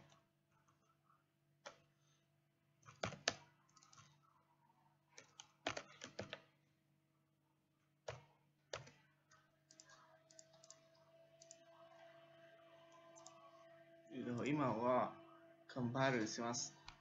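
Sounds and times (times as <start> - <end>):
computer keyboard keystrokes: 2.8 - 4.2, 5.2 - 6.5, 8.0 - 11.6, 13.2 - 13.4.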